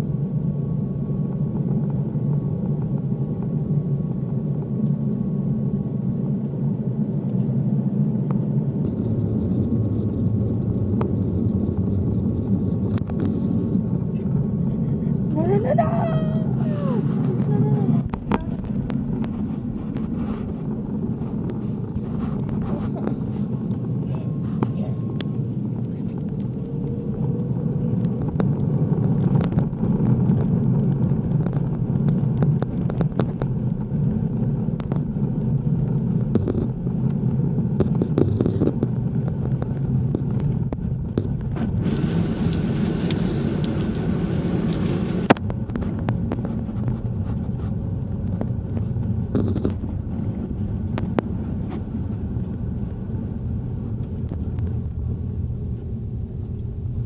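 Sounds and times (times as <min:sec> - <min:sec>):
airliner cabin rumble: 0:00.0 - 0:57.0
hiss: 0:41.8 - 0:45.3.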